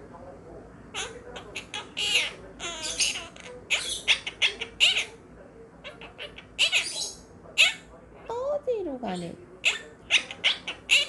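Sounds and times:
parrot chirps and squawks: 0:00.9 - 0:05.2, 0:05.8 - 0:07.9, 0:09.6 - 0:11.0.

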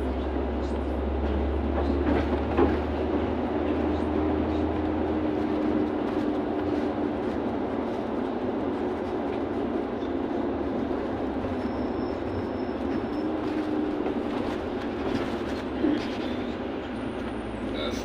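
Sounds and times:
bus cabin engine drone: 0:00.0 - 0:18.0.

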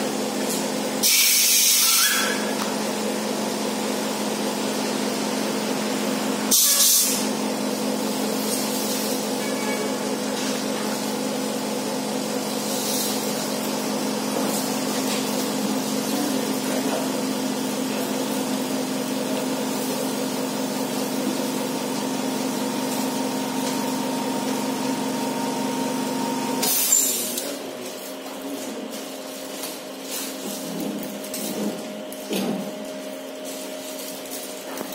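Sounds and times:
machine hum: 0:07.2 - 0:27.7.

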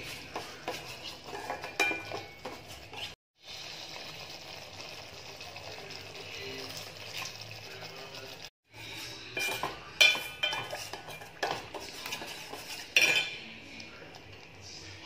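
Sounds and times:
spoon clinking against metal pot: 0:01.3 - 0:02.6, 0:09.2 - 0:13.5.

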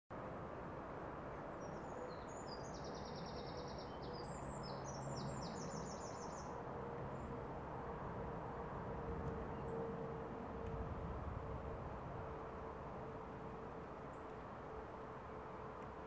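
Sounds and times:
songbird singing with trills: 0:01.6 - 0:06.6.

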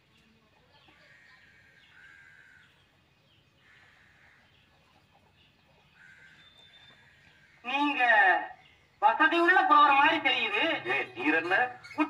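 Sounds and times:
faint bird calls: 0:00.2 - 0:09.0.

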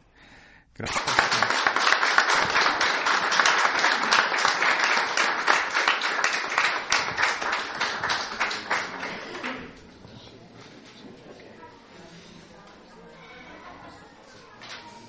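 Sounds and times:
crowd applauding: 0:00.8 - 0:09.8.

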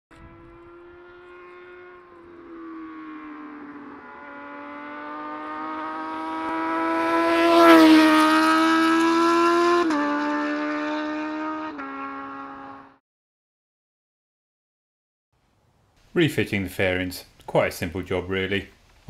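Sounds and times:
motorcycle engine at high revs: 0:00.1 - 0:13.0.

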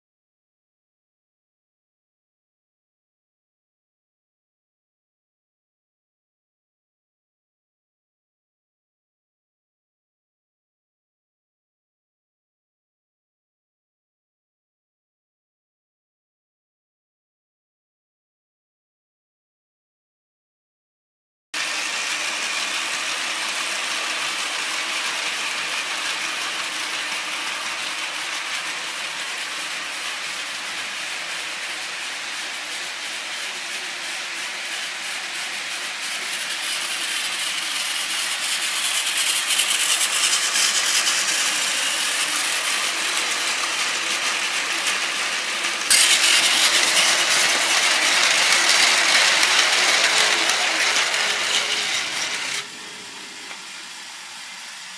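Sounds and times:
toy train motor whirring: 0:21.6 - 0:54.9
wheels rattling over rails: 0:21.6 - 0:54.9.

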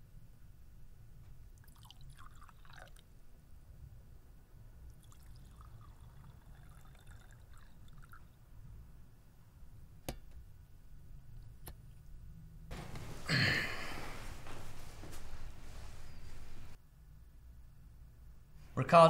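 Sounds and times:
liquid pouring into glass: 0:01.6 - 0:03.1, 0:04.8 - 0:08.4.

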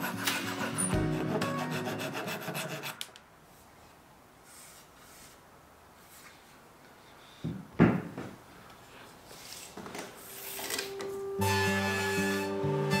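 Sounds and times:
hand saw rasping on wood: 0:00.0 - 0:03.1.

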